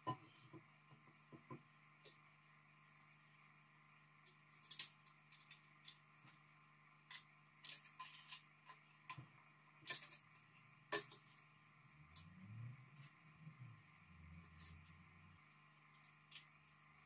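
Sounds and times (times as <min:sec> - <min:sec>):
sharp metal clink: 0:10.9 - 0:11.7.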